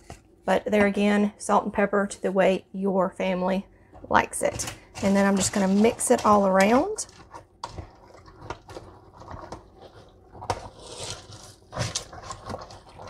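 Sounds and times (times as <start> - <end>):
soup squelching while stirred: 7.1 - 13.0.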